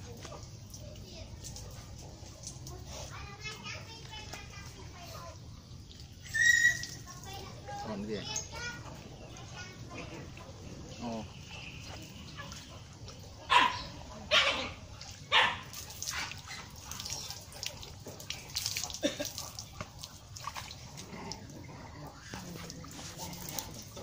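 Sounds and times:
water splashing and dripping: 0.0s - 24.0s
dog barking: 13.4s - 17.3s.

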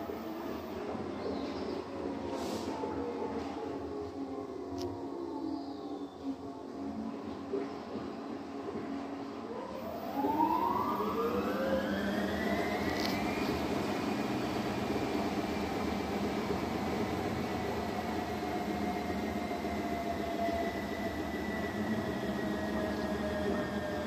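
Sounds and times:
washing machine motor whine: 10.0s - 15.4s.

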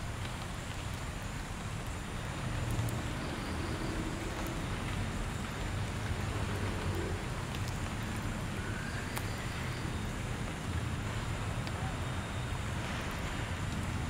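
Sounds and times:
faint ticks: 1.8s - 8.3s.

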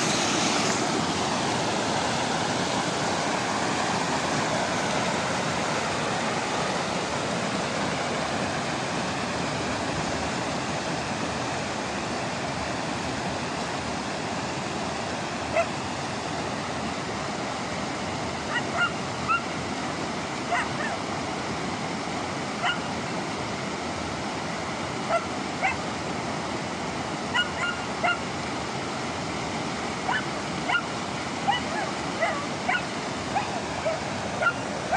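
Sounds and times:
mountain stream over boulders: 0.0s - 34.9s
puppy yelping: 18.5s - 19.4s, 27.4s - 28.2s, 31.5s - 34.6s.

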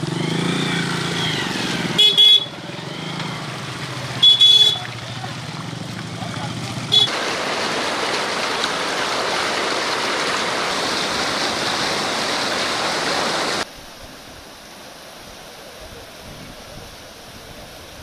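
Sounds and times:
floodwater rushing: 0.0s - 18.0s.

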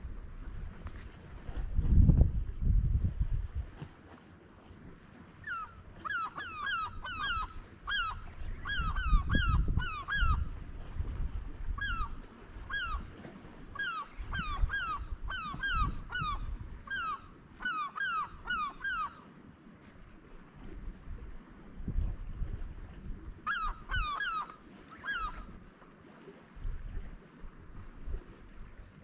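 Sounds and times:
wind rumble on microphone: 0.0s - 19.0s, 19.7s - 29.0s
birds calling: 5.4s - 10.5s, 11.8s - 13.1s, 13.8s - 19.3s, 23.5s - 25.5s.

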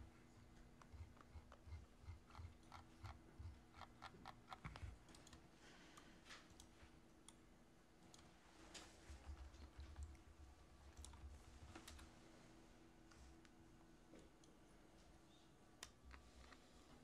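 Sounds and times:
keyboard and mouse clicking: 0.6s - 5.4s, 10.9s - 12.1s.

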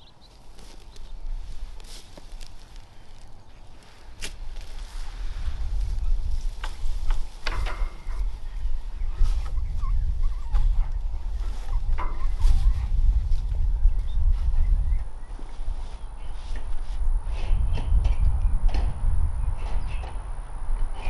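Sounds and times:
dry grass rustling underfoot: 0.0s - 17.7s
wind rumbling on microphone: 0.0s - 21.0s.

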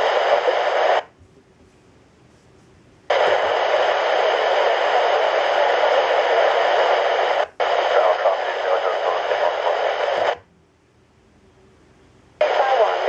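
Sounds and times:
radio static hiss: 0.0s - 1.1s, 3.1s - 10.5s, 12.4s - 13.0s.

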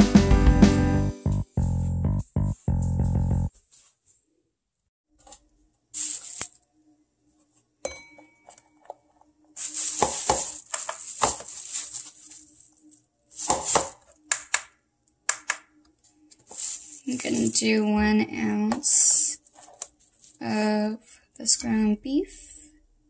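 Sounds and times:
bowl clink with ring: 7.8s - 8.8s
plastic food container handled: 9.6s - 12.4s, 19.5s - 20.0s.

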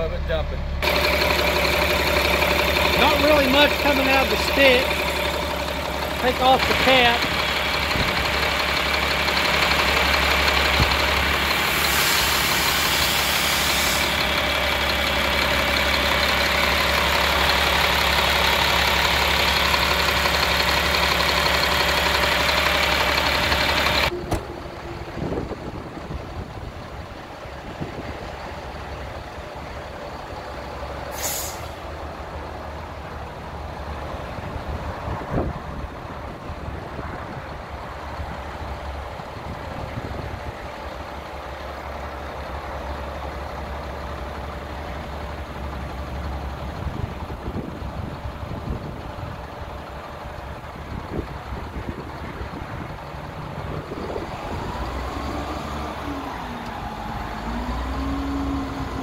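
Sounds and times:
engine revving: 0.0s - 26.8s, 53.4s - 59.0s
diesel truck engine idling: 0.0s - 59.0s
sharp air hiss: 11.6s - 14.2s, 31.1s - 31.8s.

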